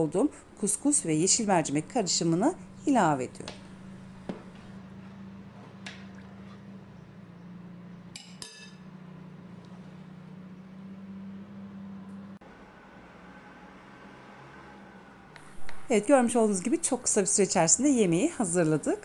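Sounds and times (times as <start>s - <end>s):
steady low hum: 0.0s - 12.2s.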